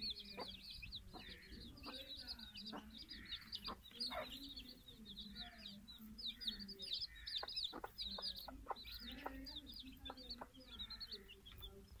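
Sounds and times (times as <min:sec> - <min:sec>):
chicks peeping: 0:00.0 - 0:12.0
hen clucking: 0:00.0 - 0:12.0.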